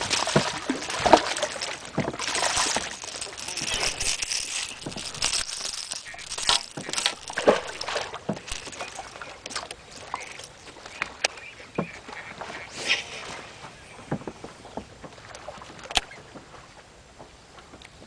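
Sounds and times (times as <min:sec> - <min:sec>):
splashes and knocks: 0:00.0 - 0:12.2
waves slapping against boat: 0:00.0 - 0:18.0.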